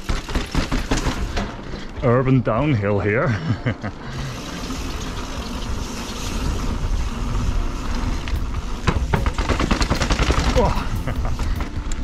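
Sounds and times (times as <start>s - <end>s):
wind rumbling on camera: 5.3s - 10.0s.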